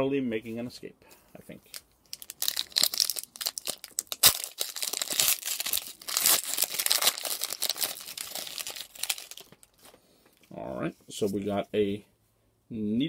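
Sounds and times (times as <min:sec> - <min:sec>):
foil wrapper tearing and crinkling: 0:02.1 - 0:09.9.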